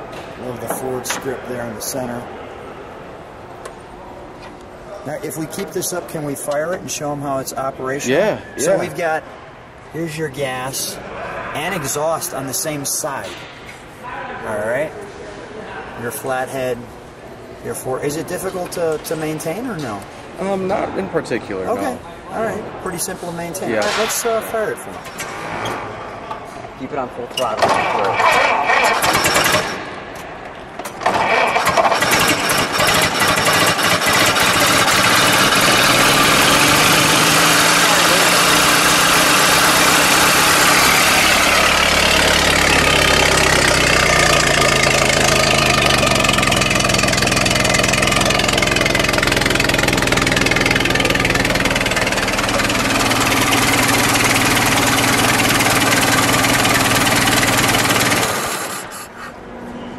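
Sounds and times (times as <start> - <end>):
car engine starting and running: 28.1 - 29.8, 31.0 - 58.9.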